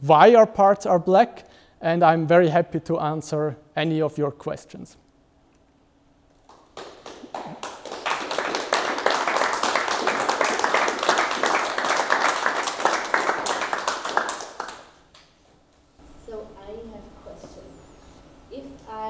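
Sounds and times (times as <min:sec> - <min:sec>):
small audience applauding: 0:06.4 - 0:15.4.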